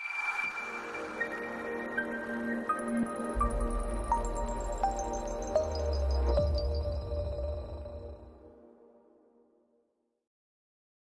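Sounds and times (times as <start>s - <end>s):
deep bass: 3.4s - 8.2s.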